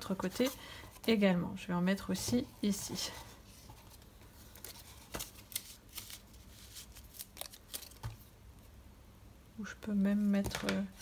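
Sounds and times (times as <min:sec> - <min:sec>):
paper rustling: 0:03.5 - 0:08.3.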